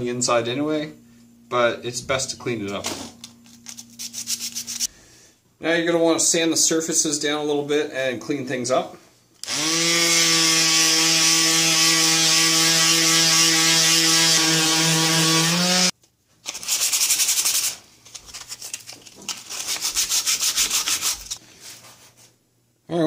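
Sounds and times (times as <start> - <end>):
electric sander running: 9.5 - 15.9.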